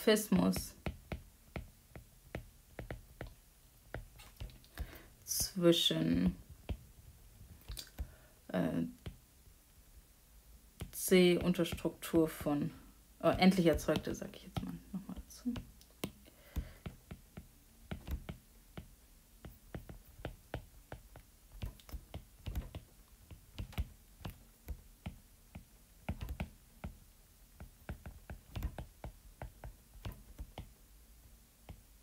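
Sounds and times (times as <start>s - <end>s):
stylus tapping on glass screen: 0.6s - 5.6s, 13.4s - 27.0s, 27.6s - 30.7s.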